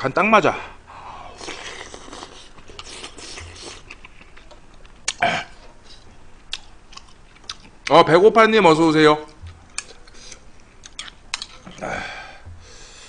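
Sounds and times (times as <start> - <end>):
man chewing: 1.1 - 7.9, 9.3 - 13.0
burp: 5.1 - 5.6.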